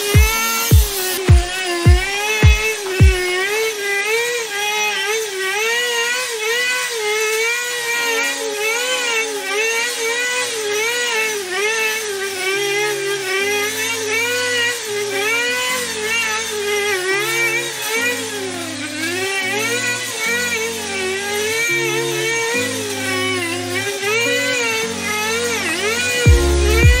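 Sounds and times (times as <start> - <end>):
string trimmer cutting grass: 0.0 - 27.0
background music: 8.0 - 9.8, 18.3 - 27.0.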